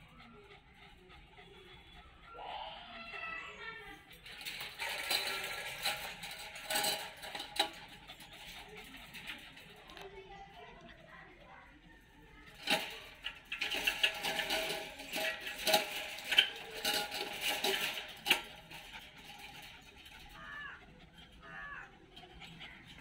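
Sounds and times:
wire dog crate rattling: 4.0 - 10.1, 12.4 - 23.0.

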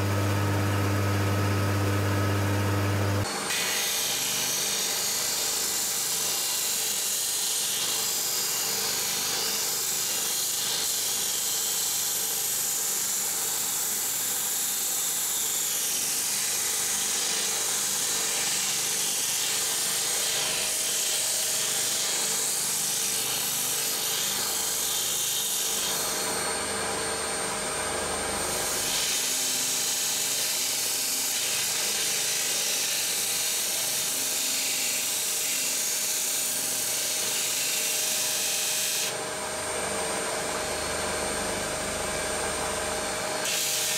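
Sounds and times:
disc sander grinding wood: 0.0 - 12.4.

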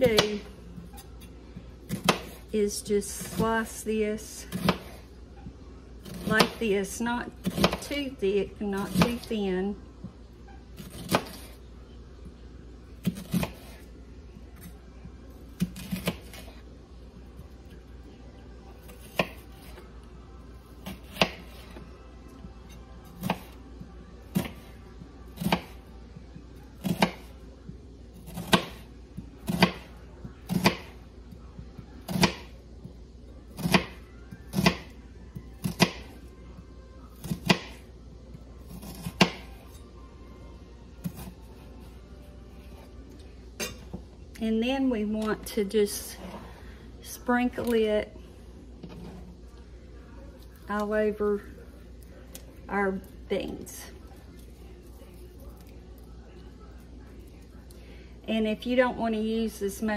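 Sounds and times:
knife slicing onion on cutting board: 1.9 - 2.5, 4.5 - 5.0, 7.4 - 8.0, 10.8 - 11.5, 13.0 - 13.8, 26.8 - 27.3, 38.6 - 39.7.

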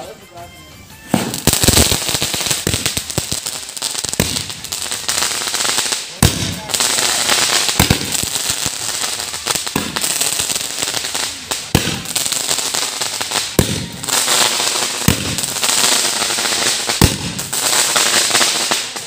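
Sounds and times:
firework bangs: 1.1 - 19.0
sparks spraying hiss: 1.2 - 19.0.

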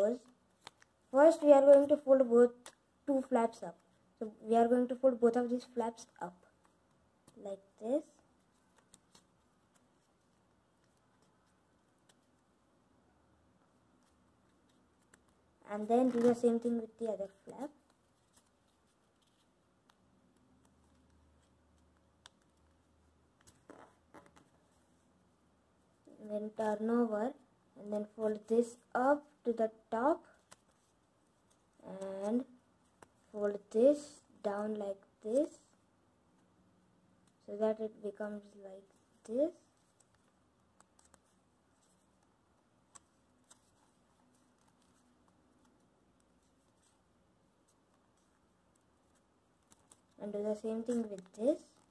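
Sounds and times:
paper folding rustle: 8.4 - 12.4, 14.0 - 20.0, 42.9 - 50.2.

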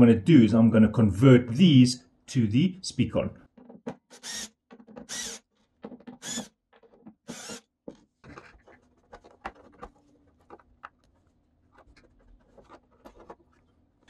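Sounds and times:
small screws clicking and scraping: 4.1 - 5.4, 6.1 - 7.6
cordless drill whirring: 4.2 - 5.4, 6.2 - 6.5, 7.2 - 7.7.

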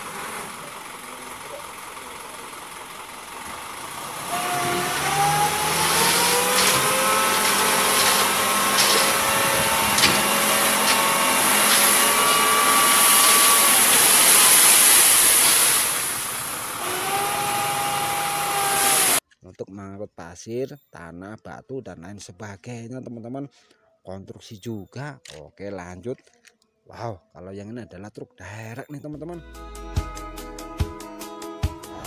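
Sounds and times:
truck engine idling and revving: 0.0 - 19.2
hydraulic whine: 3.2 - 19.2
sand sliding out: 4.4 - 16.8.

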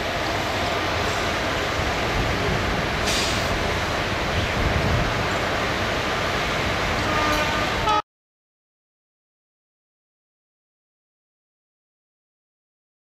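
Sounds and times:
diesel locomotives idling: 0.0 - 8.0
air hiss: 3.0 - 3.8.

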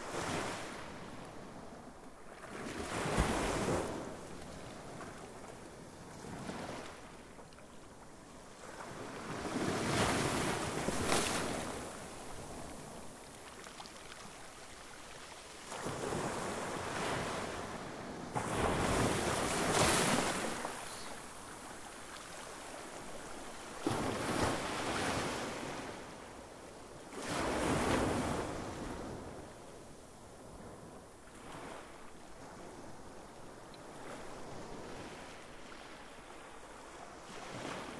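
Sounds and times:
sea waves breaking on beach: 8.6 - 26.1.

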